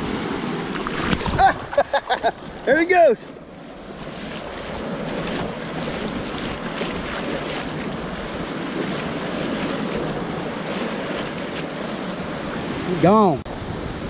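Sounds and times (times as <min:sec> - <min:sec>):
shallow surf washing: 0:00.0 - 0:14.0
wind on microphone: 0:13.5 - 0:14.0.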